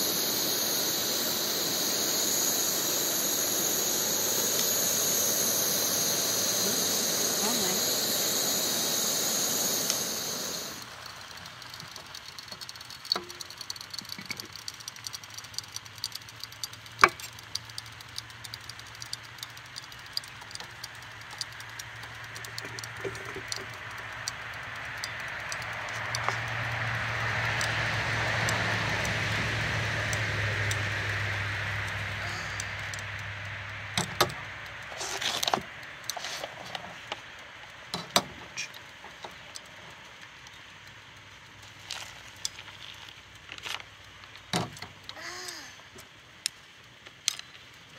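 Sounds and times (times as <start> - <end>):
loud hiss: 0.0 - 12.2, 22.8 - 33.4
low hum: 0.0 - 12.3, 22.3 - 34.8
clicks and rattling: 10.7 - 27.0
vehicle passing on road: 21.8 - 35.2.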